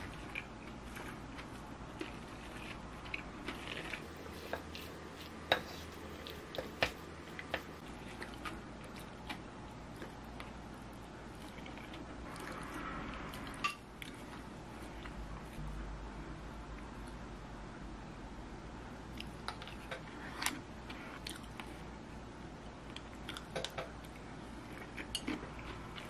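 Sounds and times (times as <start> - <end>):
food squishing: 0.0 - 15.6.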